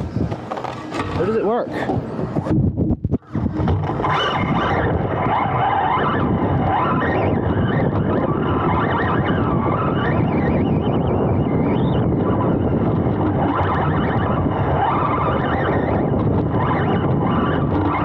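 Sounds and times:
tyres rumbling on loose dirt: 0.0s - 2.5s
wind on microphone: 0.0s - 18.0s
electric motor whine: 3.2s - 18.0s.

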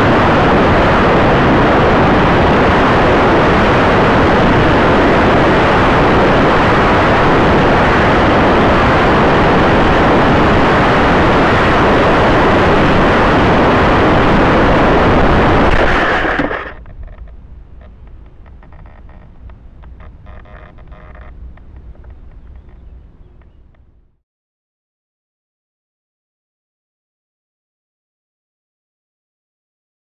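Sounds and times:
rush of airflow: 0.0s - 20.4s
faint crackling and rustling: 15.7s - 23.9s.

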